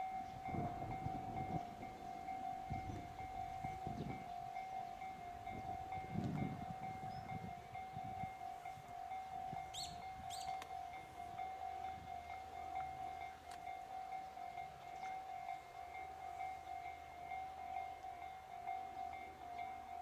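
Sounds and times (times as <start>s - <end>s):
wind buffeting microphone: 0.0s - 12.4s
level-crossing alarm ringing: 0.0s - 20.0s
rising bird chirps: 9.7s - 10.6s.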